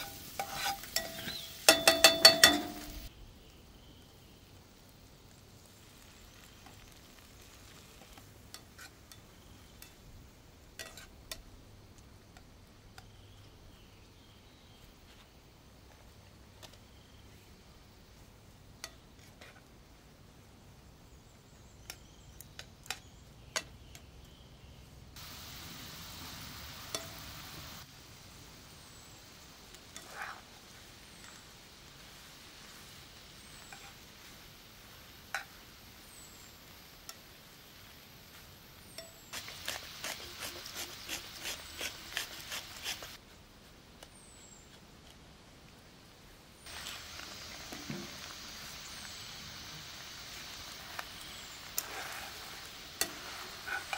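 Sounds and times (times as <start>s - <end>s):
metal tongs clicking on pan: 0.0s - 3.1s
food sizzling in a pan: 0.0s - 13.8s, 25.2s - 43.2s, 46.6s - 53.9s
loud sizzle: 0.0s - 13.9s, 24.9s - 43.2s, 46.6s - 53.9s
hand grinder grinding salt: 39.4s - 43.2s.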